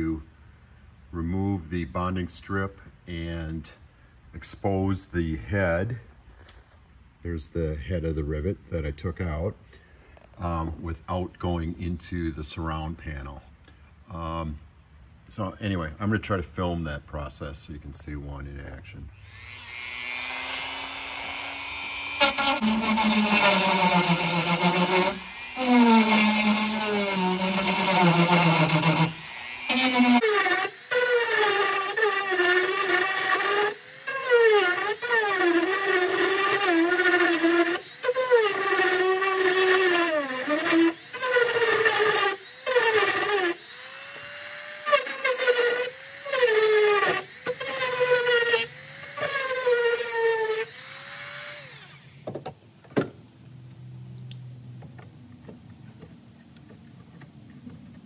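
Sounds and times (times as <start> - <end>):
rotary tool grinding: 19.2 - 52.2.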